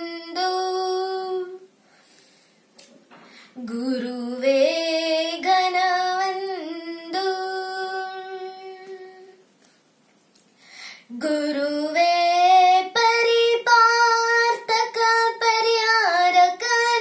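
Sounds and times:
girl singing drawn-out vowels: 0:11.1 - 0:17.0.

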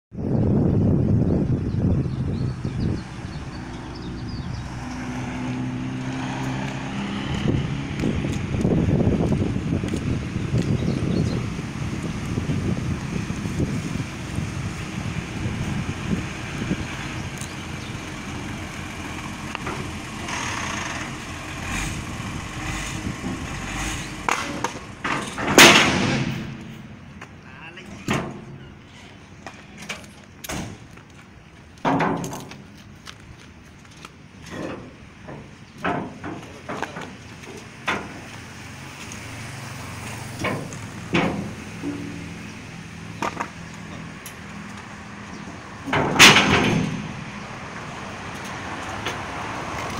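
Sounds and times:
vehicle noise: 0:00.1 - 0:49.9
low engine hum: 0:00.2 - 0:49.9
ramp slamming onto concrete: 0:22.9 - 0:27.0, 0:31.8 - 0:32.6, 0:40.3 - 0:42.4, 0:45.8 - 0:47.4
metal ramp knocks and clanks: 0:24.2 - 0:27.0, 0:27.9 - 0:28.6, 0:31.8 - 0:32.7, 0:34.5 - 0:38.2, 0:40.3 - 0:42.4, 0:45.8 - 0:47.4.

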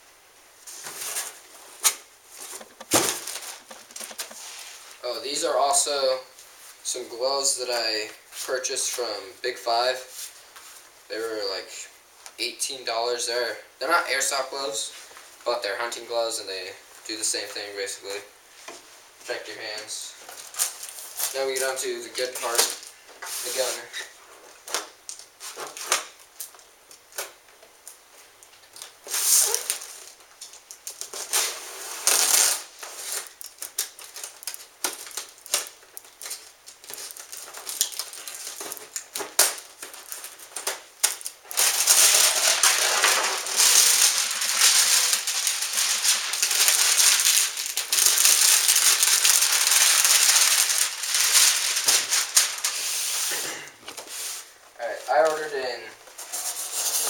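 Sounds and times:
plastic wrap crinkling: 0:00.7 - 0:06.9, 0:20.1 - 0:27.4, 0:28.5 - 0:57.0.

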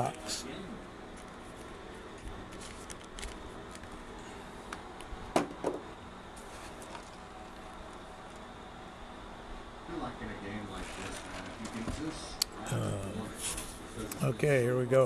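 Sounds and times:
sharp crinkle: 0:01.1 - 0:04.0.

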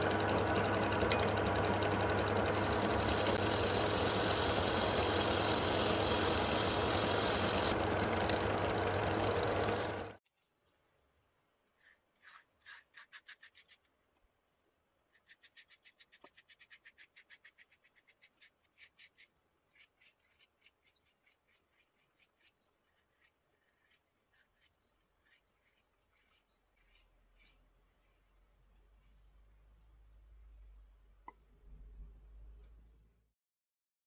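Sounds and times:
paintbrush strokes on wood: 0:19.8 - 0:29.4.

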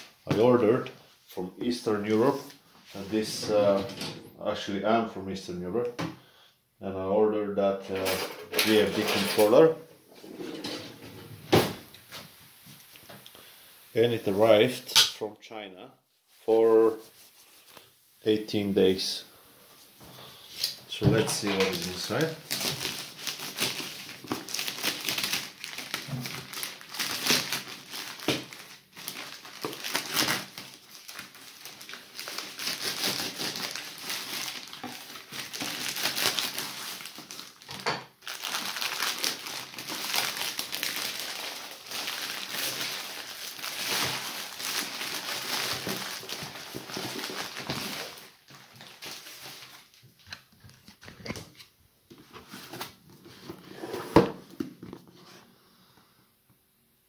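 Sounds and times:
plastic crinkling and rustling: 0:07.9 - 0:09.6, 0:19.8 - 0:53.6
plastic tearing: 0:20.6 - 0:51.7
knife cutting plastic mailer: 0:31.8 - 0:34.8.

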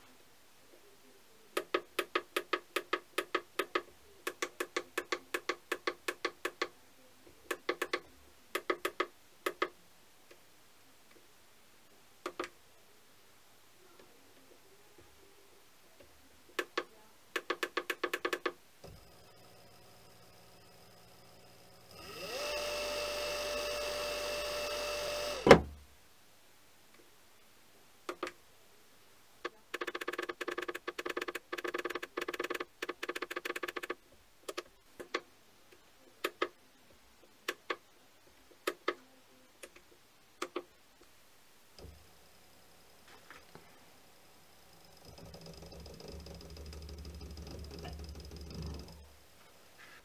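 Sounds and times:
motor whine: 0:18.9 - 0:25.6.

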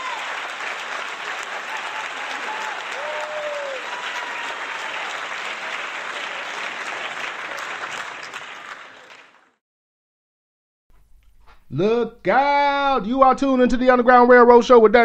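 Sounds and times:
crowd applause: 0:00.0 - 0:09.6.

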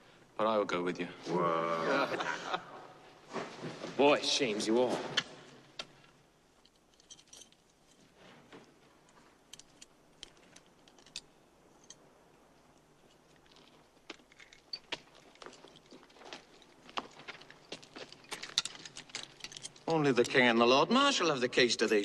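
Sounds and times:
light clicks and clinks: 0:05.8 - 0:20.6.

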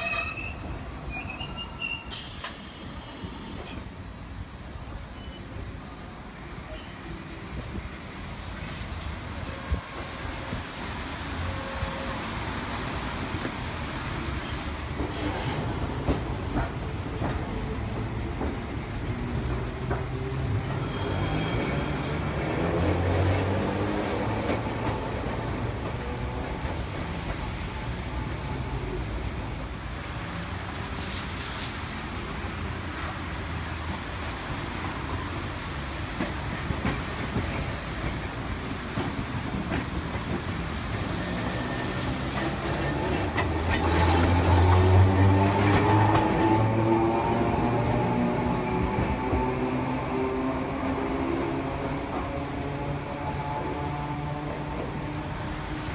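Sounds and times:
wheel squeal on rails: 0:00.0 - 0:03.9, 0:18.8 - 0:23.1, 0:40.9 - 0:46.8
tram wheels rumbling over rail joints: 0:00.0 - 0:55.9.

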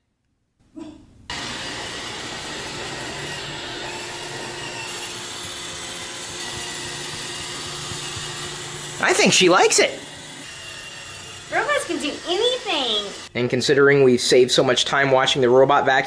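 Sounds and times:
robot vacuum running on carpet: 0:01.3 - 0:13.3.

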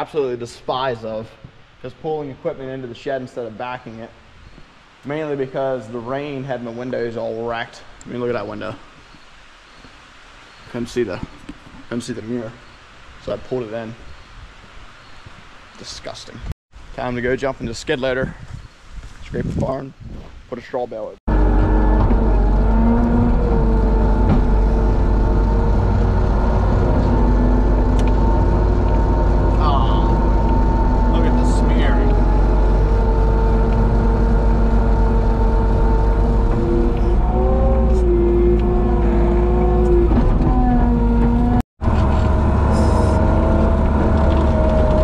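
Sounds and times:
loader engine rumbling: 0:21.3 - 0:45.0.

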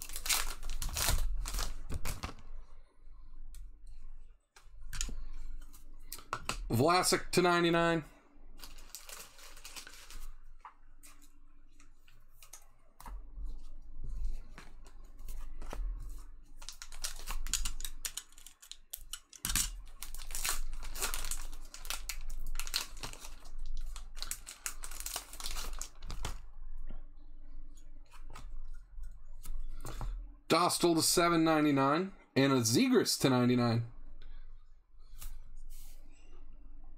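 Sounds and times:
foil wrappers tearing and crinkling: 0:00.0 - 0:02.3, 0:08.6 - 0:10.4, 0:16.6 - 0:18.8, 0:19.4 - 0:26.4
cards rustling: 0:00.0 - 0:02.4, 0:08.6 - 0:13.1, 0:14.3 - 0:26.4.

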